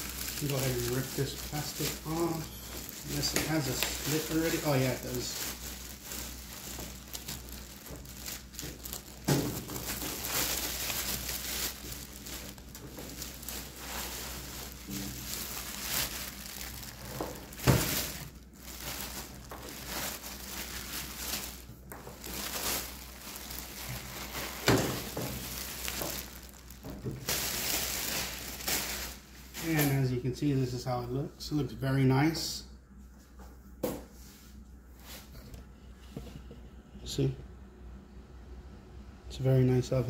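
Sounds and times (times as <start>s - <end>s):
plastic bag crinkling: 0.0s - 30.1s.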